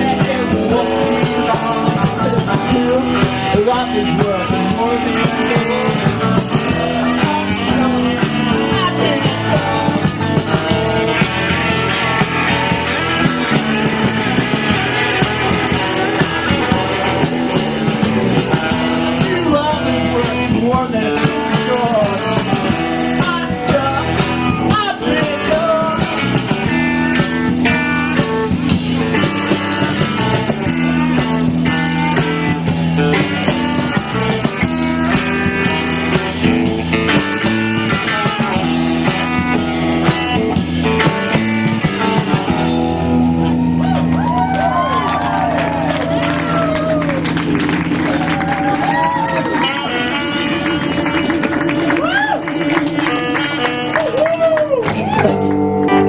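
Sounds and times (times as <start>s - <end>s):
person singing: 0.0s - 26.8s
drums: 0.0s - 56.0s
electric guitars: 0.0s - 56.0s.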